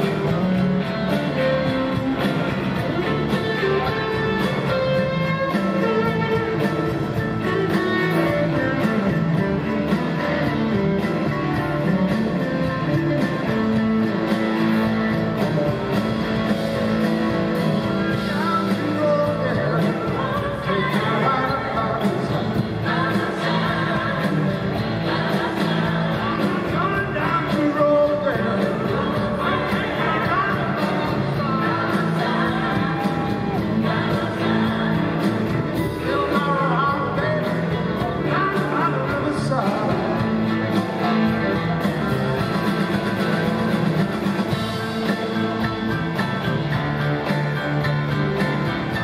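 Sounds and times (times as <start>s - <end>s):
blues-rock band playing live: 0.0s - 49.0s
drum kit: 0.0s - 49.0s
electric bass: 0.0s - 49.0s
electric guitar: 0.0s - 49.0s
man singing: 18.0s - 41.8s.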